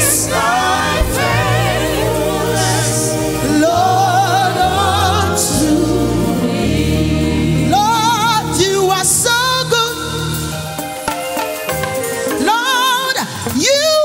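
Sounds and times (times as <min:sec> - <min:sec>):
choir singing: 0:00.0 - 0:09.9
band with bass line: 0:00.0 - 0:13.5.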